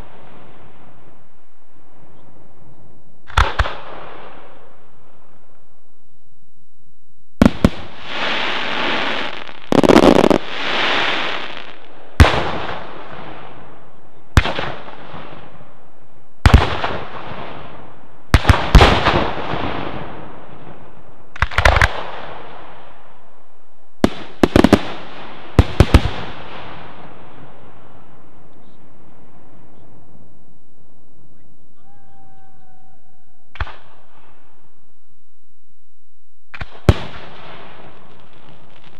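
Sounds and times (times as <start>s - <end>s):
fireworks bursting with loud bangs: 3.2s - 5.2s, 7.4s - 15.7s, 16.4s - 23.1s, 24.0s - 29.9s, 33.5s - 34.5s, 36.5s - 38.9s
firework hiss: 7.6s - 11.9s.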